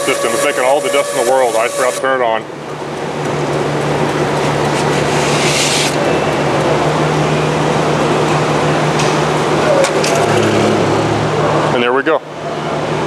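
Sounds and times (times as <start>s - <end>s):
bandsaw cutting: 0.0s - 2.0s, 4.4s - 6.8s.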